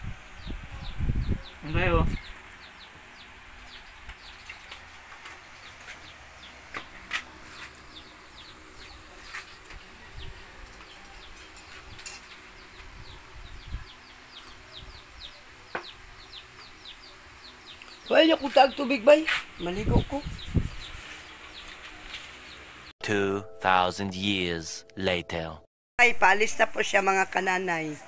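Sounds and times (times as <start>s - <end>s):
birds chirping: 0.0s - 22.9s.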